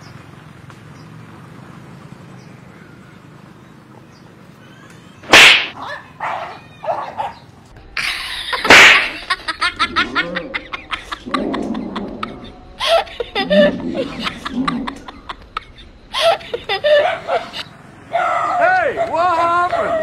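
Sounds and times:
dog yelping: 5.7 - 7.4, 16.8 - 20.0.

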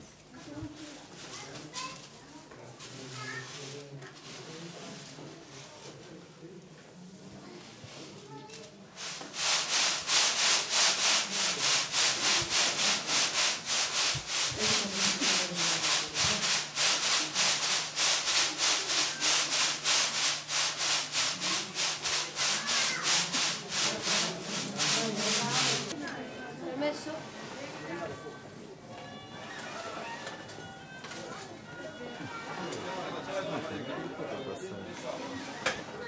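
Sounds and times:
sieve contents swishing: 8.9 - 26.0.

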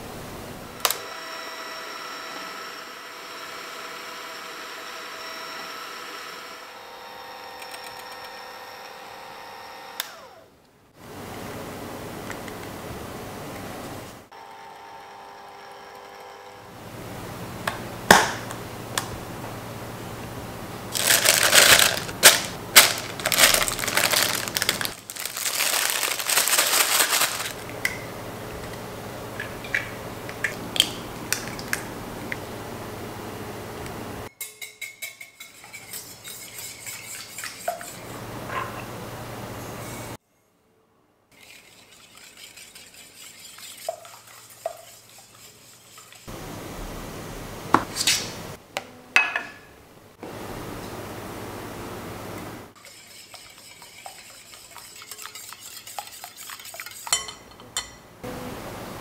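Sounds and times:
plastic bag crinkling: 20.9 - 27.6
whisk clinking against glass: 34.4 - 38.0, 52.8 - 58.0
whisk stirring in glass bowl: 34.6 - 38.2, 41.4 - 46.3, 52.8 - 58.0
spatula scooping whipped cream: 41.4 - 46.3, 52.8 - 57.4.

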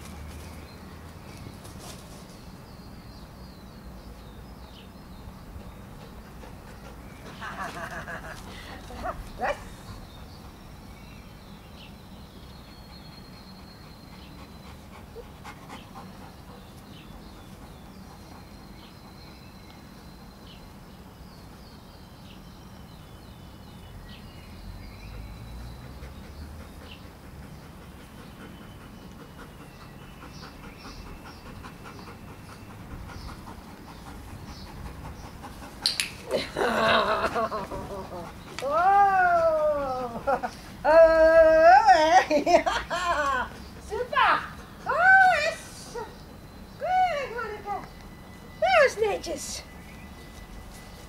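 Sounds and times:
dog panting: 5.4 - 10.7, 12.5 - 20.4, 25.0 - 35.9, 37.3 - 38.6, 43.5 - 44.9.

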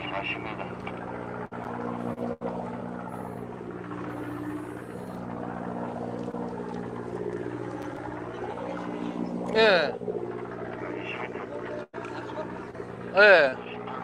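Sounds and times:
boat engine humming: 0.0 - 14.0.

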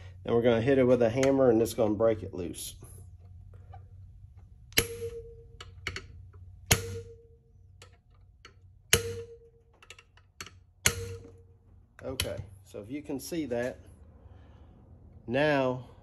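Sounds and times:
hammer striking metal socket: 4.7 - 11.4.

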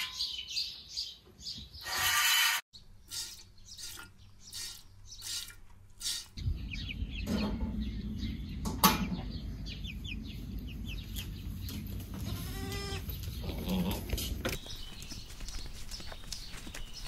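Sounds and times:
steady low rumble: 6.4 - 12.2
goat bleating: 12.2 - 14.1.

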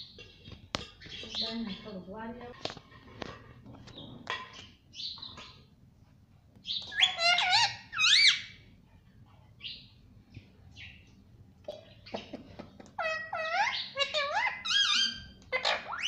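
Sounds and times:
parakeet calling: 6.6 - 8.6, 13.0 - 16.0.

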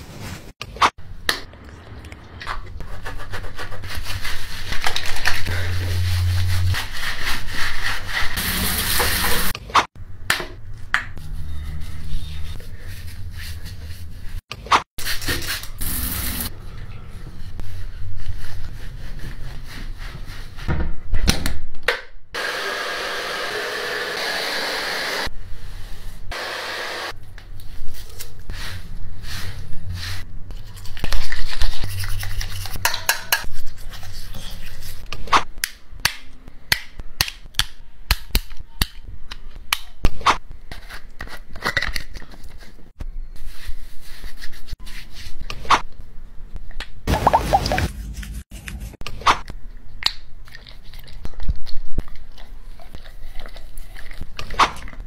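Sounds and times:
toothbrush scrubbing teeth: 30.6 - 32.8, 50.4 - 54.6.

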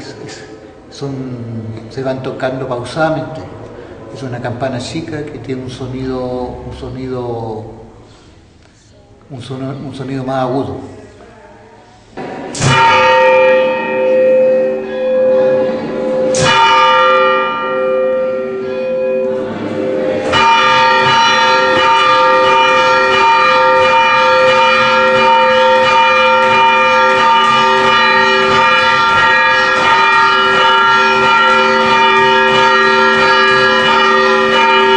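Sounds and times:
church bell tolling: 12.5 - 34.9.

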